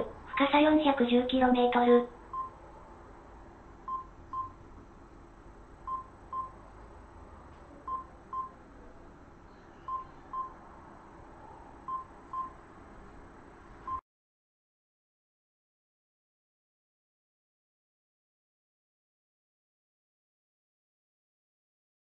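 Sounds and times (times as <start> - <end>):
faint steady hum: 0.0 - 14.0
short double electronic beeps: 9.7 - 10.6.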